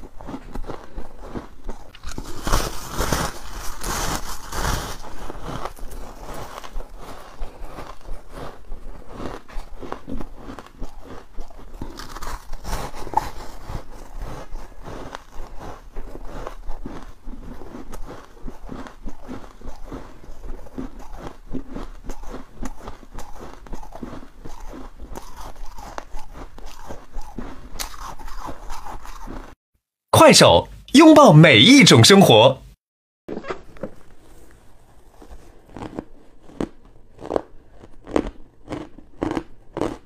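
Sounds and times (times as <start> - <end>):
crunching and chewing ice: 0.0 - 29.6, 33.6 - 40.0.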